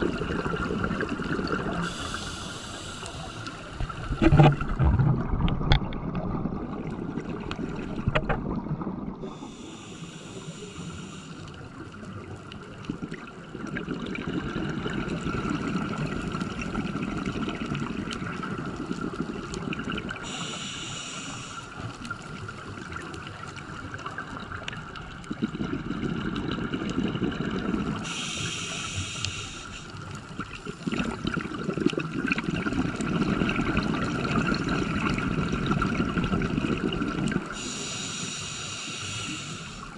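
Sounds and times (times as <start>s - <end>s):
gurgling exhaust bubbles: 0.0s - 2.2s, 12.8s - 20.2s, 24.2s - 28.1s, 30.3s - 37.7s
faint steady whine: 1.7s - 4.4s, 9.2s - 12.7s, 20.2s - 23.2s, 28.0s - 30.3s, 37.2s - 39.9s
regulator hissing inhales: 1.8s - 3.8s, 9.2s - 11.6s, 20.2s - 21.9s, 28.0s - 30.0s, 37.5s - 39.9s.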